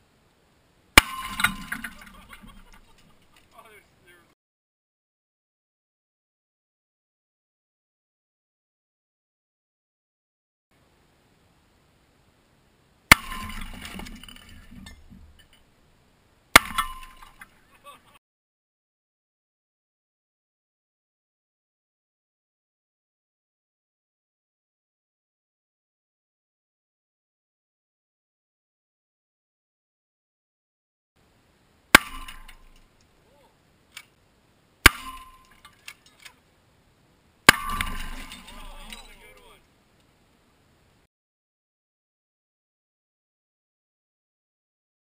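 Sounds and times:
glass bottles smashing: 1.0s - 3.3s, 13.1s - 15.6s, 16.6s - 17.6s, 32.0s - 32.8s, 34.8s - 36.2s, 37.5s - 39.2s
debris clinking: 1.0s - 3.5s, 13.1s - 15.7s, 16.6s - 17.7s, 31.9s - 32.9s, 34.8s - 36.4s, 37.5s - 39.5s
glass fragments tinkling: 1.0s - 3.5s, 37.6s - 39.3s.

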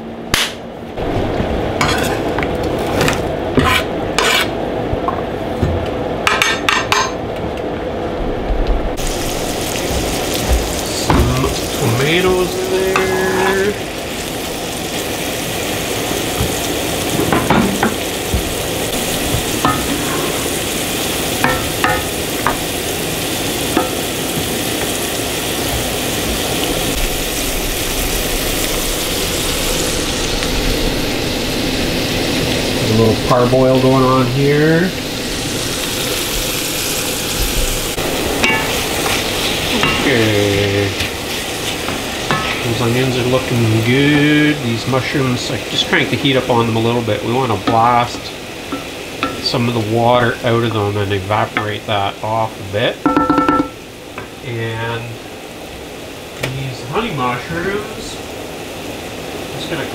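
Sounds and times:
onions sizzling in oil: 1.0s - 4.8s, 8.8s - 59.9s
utensils and pans clattering: 1.8s - 4.5s, 6.3s - 7.2s, 17.2s - 18.0s, 19.6s - 20.5s, 38.4s - 40.2s, 41.9s - 42.7s, 53.1s - 53.8s.

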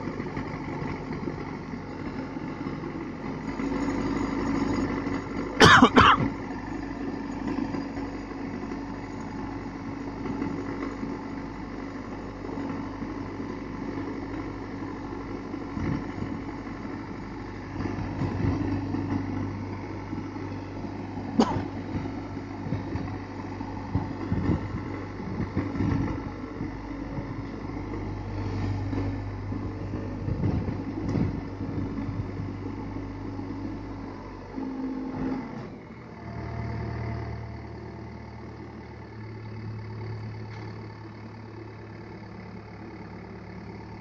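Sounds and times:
diesel engine running: 0.0s - 44.0s.

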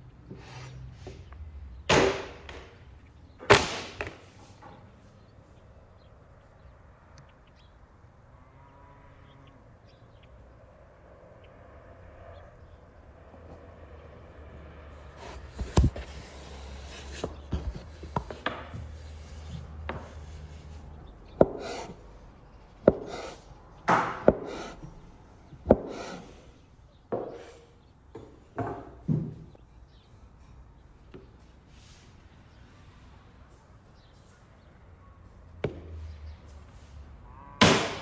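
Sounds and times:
cleaver chopping on wooden board: 21.4s - 21.9s, 22.8s - 24.8s, 25.6s - 26.2s.

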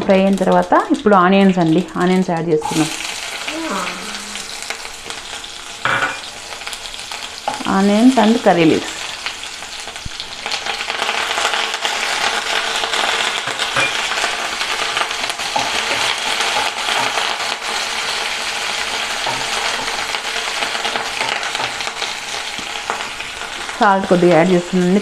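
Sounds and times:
onions sizzling in ghee: 0.0s - 25.0s
crackles and pops: 9.0s - 24.2s.

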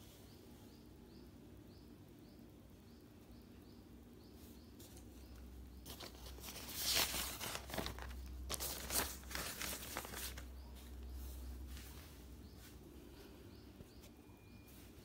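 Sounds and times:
paper rustling and pages turning: 5.8s - 12.2s.

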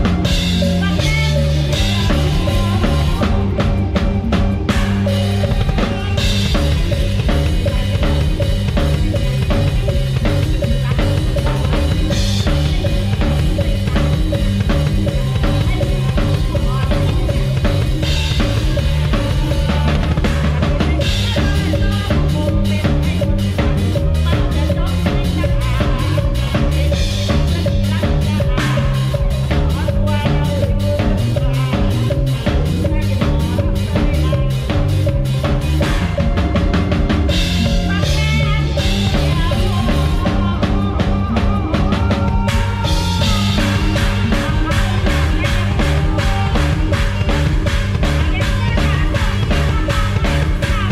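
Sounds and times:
drum kit fast beat: 0.0s - 50.9s
full band music: 0.0s - 50.9s.

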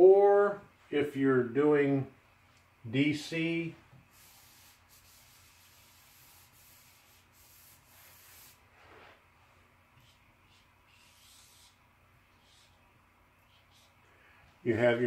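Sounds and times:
cloth wiping a whiteboard: 3.2s - 14.0s.

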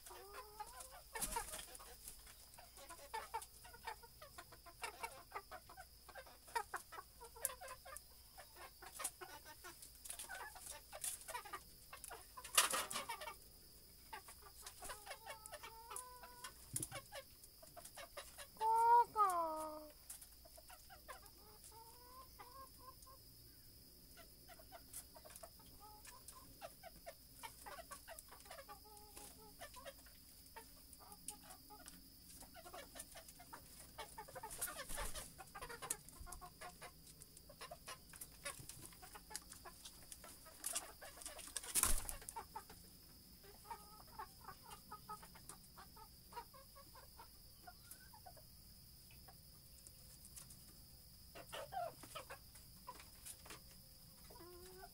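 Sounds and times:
rooster clucking: 14.2s - 19.9s.

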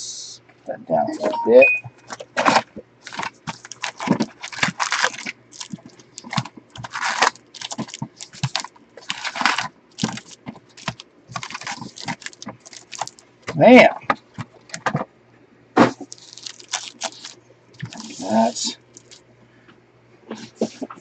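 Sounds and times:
wrapper crinkling: 2.1s - 13.4s, 15.9s - 19.2s.

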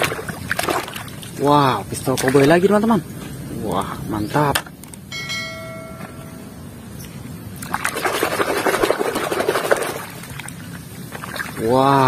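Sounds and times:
short ringing tone: 5.1s - 6.8s.

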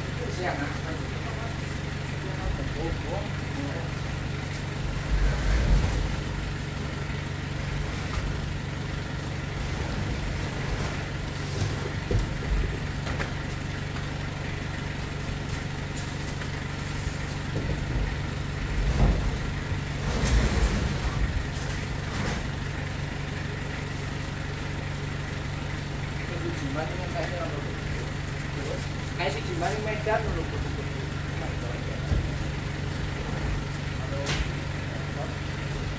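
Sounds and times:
truck engine idling: 0.0s - 35.9s
crates thumping onto truck bed: 10.0s - 13.4s, 17.5s - 21.5s.

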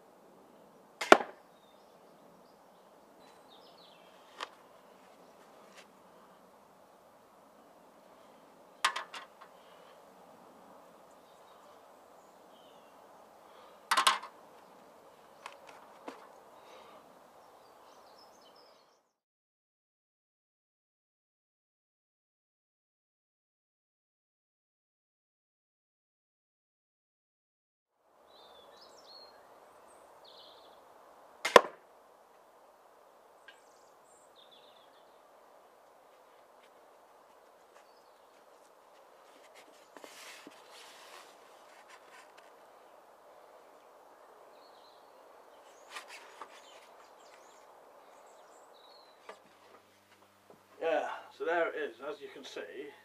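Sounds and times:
birds chirping faintly: 0.0s - 19.2s, 28.1s - 53.0s
steady outdoor hiss: 0.0s - 19.2s, 27.9s - 53.0s
crossbow shot crack: 1.0s - 1.4s, 31.4s - 31.9s
faint bird chirps: 10.9s - 13.9s, 28.2s - 30.9s, 39.2s - 49.6s.

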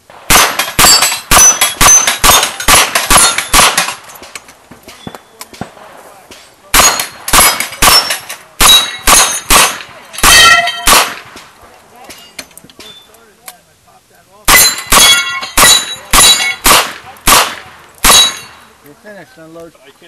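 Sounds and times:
steel plates clanging: 10.2s - 10.9s, 18.1s - 18.7s.

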